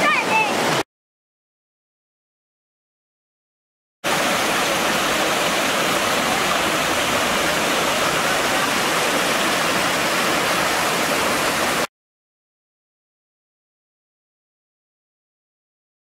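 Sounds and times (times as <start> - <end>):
creek water rushing over cascades: 0.0 - 0.8, 4.0 - 11.9.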